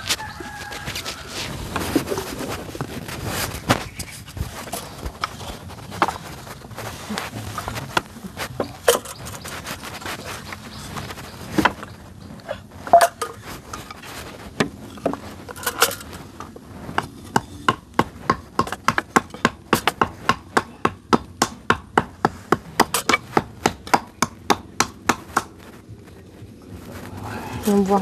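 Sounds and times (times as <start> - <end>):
hand tool striking wood: 7.5 - 10.2, 12.8 - 25.8.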